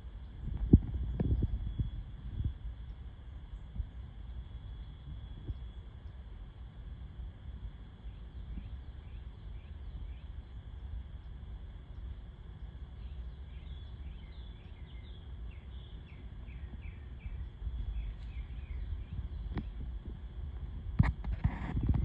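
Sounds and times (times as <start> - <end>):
low outdoor rumble: 0.0 - 22.0
small bird chirping: 8.0 - 20.2.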